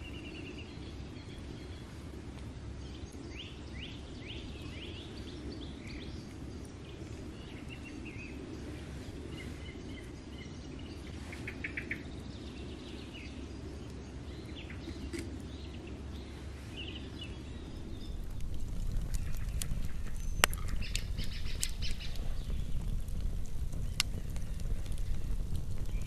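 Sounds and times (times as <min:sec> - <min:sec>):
birds chirping: 0:00.0 - 0:26.0
campfire crackling and popping: 0:00.0 - 0:26.0
rush of flames: 0:00.0 - 0:26.0
low rumble: 0:12.0 - 0:26.0.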